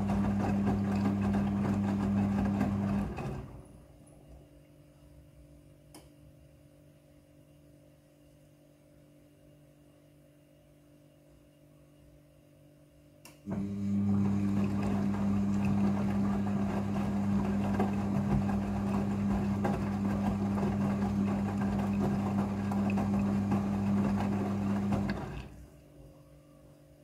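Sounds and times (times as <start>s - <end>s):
wet laundry tumbling: 0.0s - 3.6s, 13.7s - 25.6s
washing machine motor humming: 0.0s - 3.9s, 13.5s - 25.8s.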